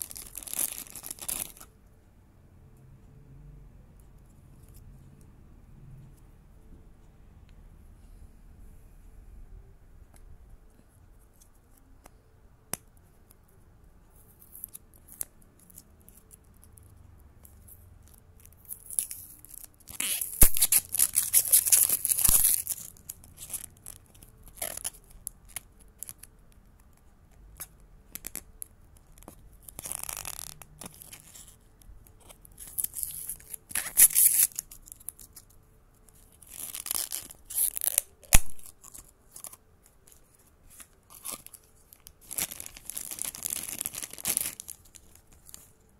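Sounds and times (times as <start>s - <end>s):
plastic wrap tearing: 18.6s - 26.3s, 28.1s - 31.6s, 32.3s - 35.5s, 36.1s - 45.8s.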